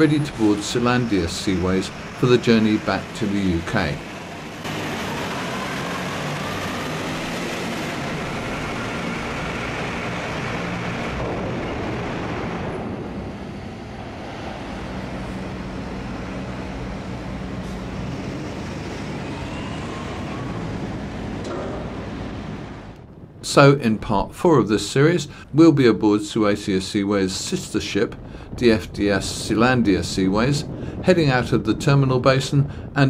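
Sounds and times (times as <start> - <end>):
diesel engine running: 0.0 - 23.7.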